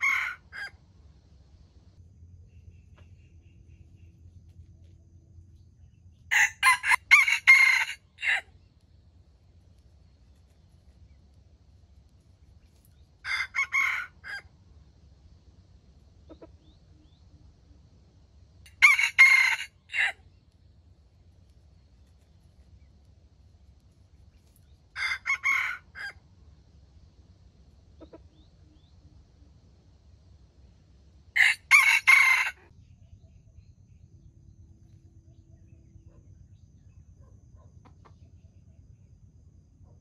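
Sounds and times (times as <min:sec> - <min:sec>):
rooster crowing: 0:00.0 - 0:00.8, 0:06.3 - 0:08.5, 0:13.2 - 0:14.5, 0:18.7 - 0:20.2, 0:24.9 - 0:26.2, 0:31.3 - 0:32.7.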